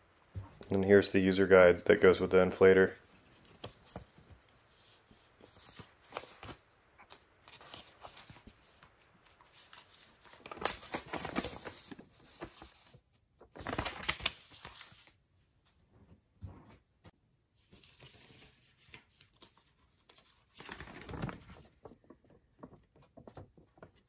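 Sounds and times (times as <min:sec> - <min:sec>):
paper pages rustling: 0:02.6 - 0:15.2, 0:17.6 - 0:24.0.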